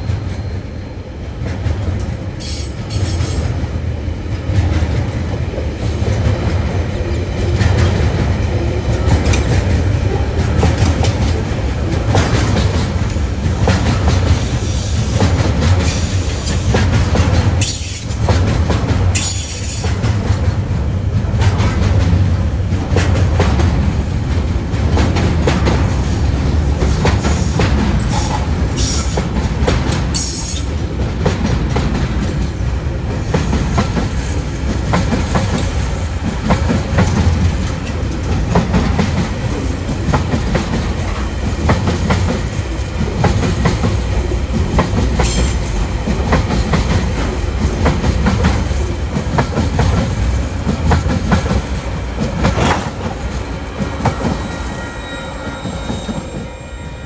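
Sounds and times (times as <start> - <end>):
freight train rumbling past: 0.0 - 57.0
high wheel squeals: 54.2 - 57.0.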